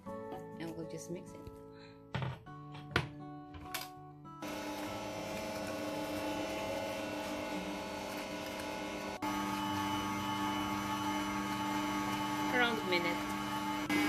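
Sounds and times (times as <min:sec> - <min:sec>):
stand mixer whisking: 0:04.4 - 0:14.0.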